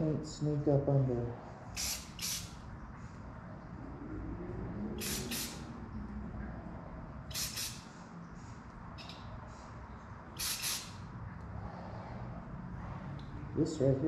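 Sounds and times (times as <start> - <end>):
spray paint can hissing: 1.7 - 2.6, 5.0 - 5.7, 7.3 - 8.0, 10.4 - 11.1.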